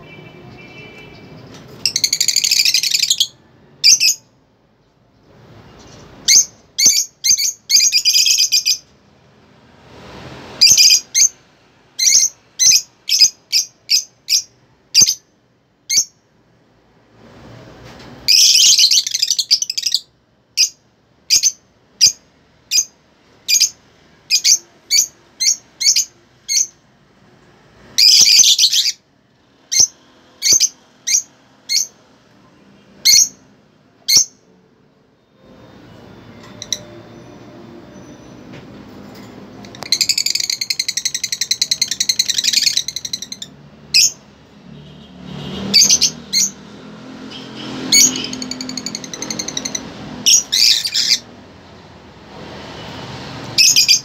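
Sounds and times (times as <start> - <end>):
lovebirds chirping: 0.0 - 8.9, 12.0 - 15.3, 18.2 - 26.8, 27.9 - 29.0, 29.6 - 34.5, 39.6 - 44.2, 44.8 - 46.6, 47.2 - 51.3, 53.5 - 54.0.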